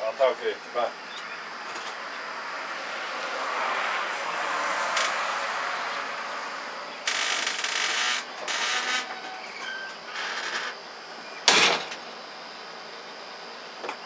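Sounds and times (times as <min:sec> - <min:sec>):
vehicle passing by: 0:01.6 - 0:08.2.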